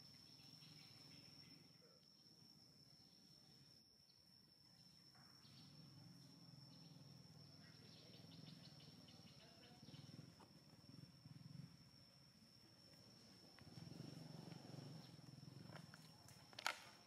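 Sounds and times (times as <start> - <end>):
high-pitched insect drone: 0.0 - 16.1
faint forest ambience: 0.0 - 17.0.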